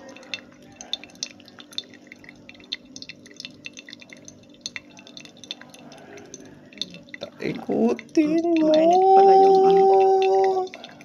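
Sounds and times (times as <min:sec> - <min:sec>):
coffee dripping plinks: 0:00.0 - 0:11.0
hot water pouring in thin stream: 0:00.0 - 0:11.0.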